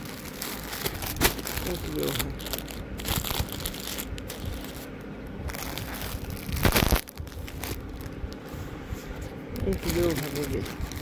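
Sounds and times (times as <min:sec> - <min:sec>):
plastic packaging crinkling: 0:00.0 - 0:08.4, 0:09.6 - 0:11.0.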